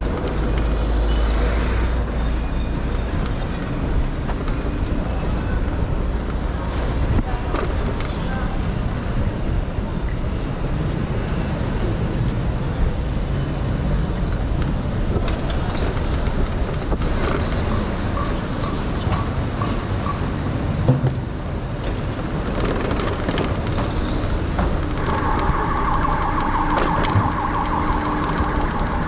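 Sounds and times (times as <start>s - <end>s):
city traffic: 0.0s - 29.0s
car low rumble: 20.4s - 29.0s.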